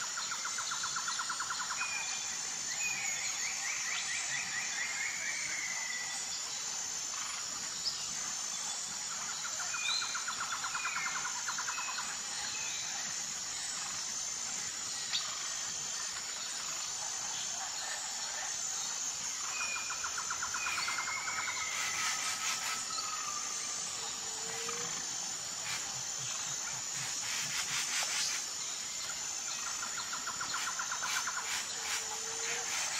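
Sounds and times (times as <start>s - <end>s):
insects chirring: 0.0s - 32.9s
rapid bird trills: 19.5s - 23.2s.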